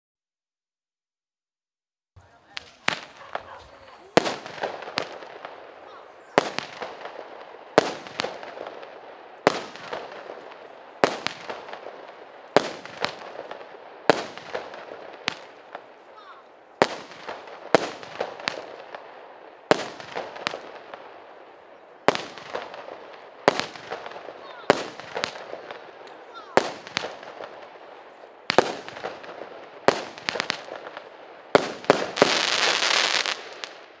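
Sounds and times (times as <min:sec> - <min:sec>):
dense firework crackling: 0:02.2 - 0:34.0
firework bangs: 0:02.2 - 0:34.0
small firework pops: 0:02.5 - 0:33.9
firework hiss: 0:28.4 - 0:33.8.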